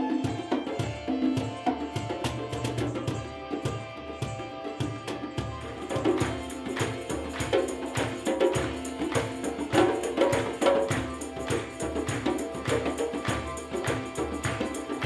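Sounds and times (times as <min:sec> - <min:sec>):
hand drums beating: 0:00.0 - 0:15.0
violin bowing held notes: 0:00.0 - 0:15.0.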